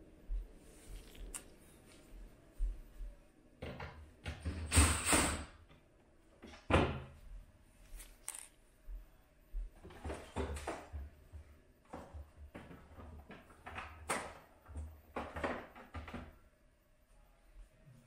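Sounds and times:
plastic shelf parts knocking: 12.0 - 16.4.

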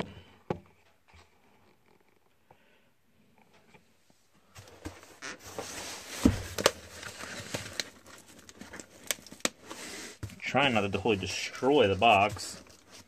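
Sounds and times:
cardboard rustling and scraping: 4.5 - 13.0.

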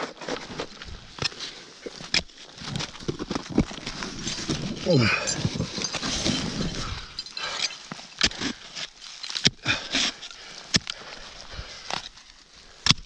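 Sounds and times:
crampons crunching in snow: 0.0 - 13.0.

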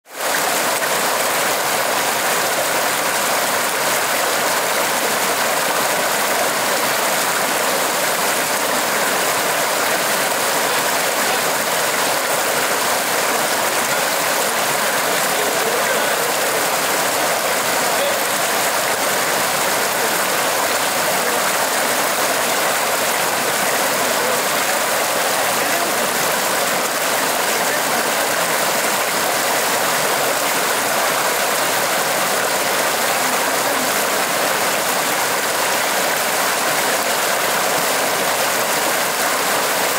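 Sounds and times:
stream rushing over rocks: 0.1 - 39.9.

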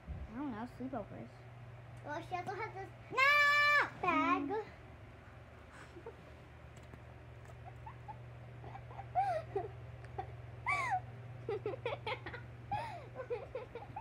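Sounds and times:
steady low hum: 0.0 - 14.0
girls giggling: 7.5 - 14.0.

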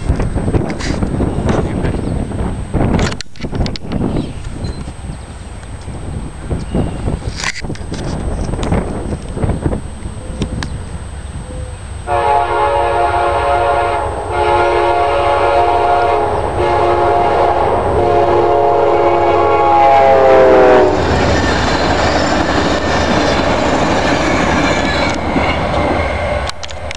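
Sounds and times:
train cars rumbling on rails: 0.0 - 26.9
train air horn blasts: 12.1 - 21.3.

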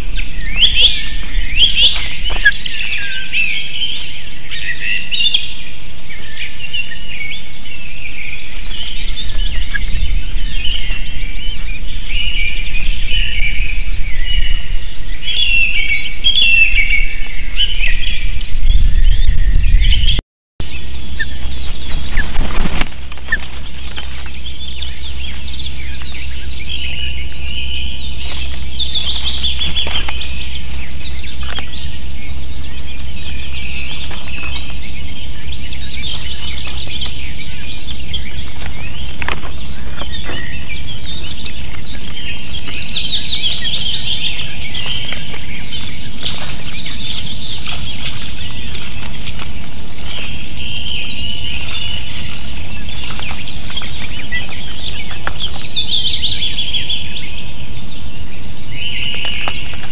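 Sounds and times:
low steady hum: 0.0 - 59.9
ospreys chirping: 0.0 - 59.9.

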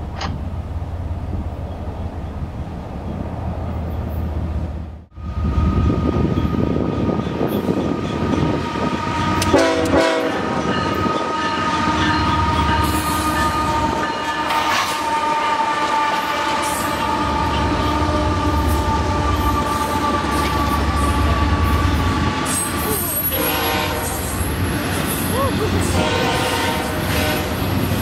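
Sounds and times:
diesel engines and wheels rumbling: 0.0 - 28.0
train horn blast: 8.6 - 24.5, 25.8 - 27.8.

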